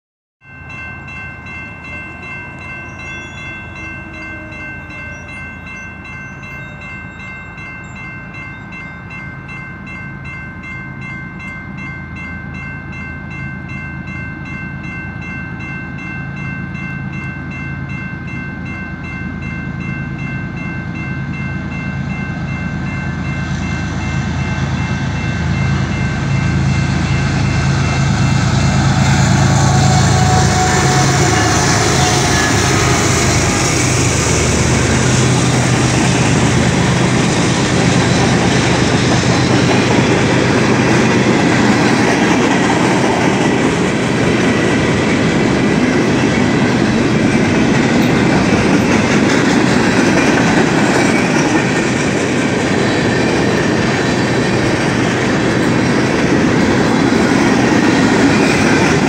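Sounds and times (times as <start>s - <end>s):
crossing warning bell ringing: 0.4s - 59.0s
diesel locomotive engine rumble: 0.5s - 59.0s
train wheel noise: 14.5s - 59.0s.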